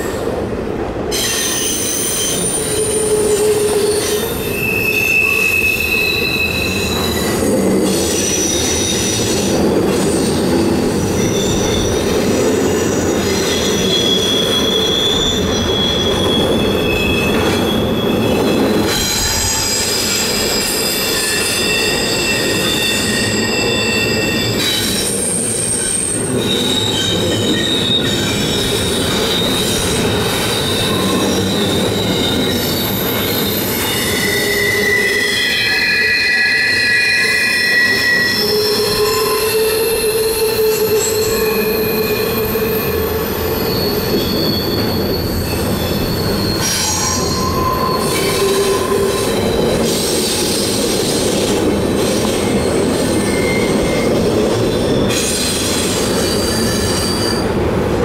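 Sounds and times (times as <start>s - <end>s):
wheel flanges squealing on rail: 1.1s - 57.7s
rumble of wheels on track: 37.8s - 58.0s.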